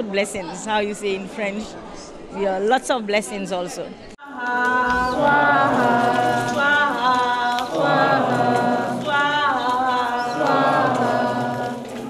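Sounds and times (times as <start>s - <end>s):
devotional chanting voices: 4.2s - 12.0s.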